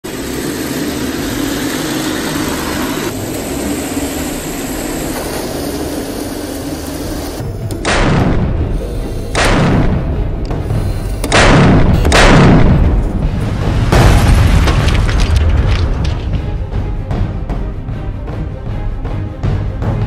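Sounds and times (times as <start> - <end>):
tank cannon booms: 11.2 - 16.1.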